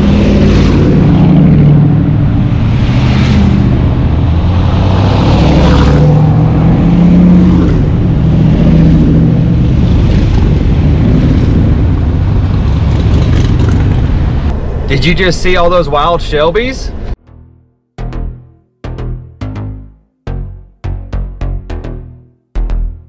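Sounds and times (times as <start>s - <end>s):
cars driving past: 0.0s - 17.2s.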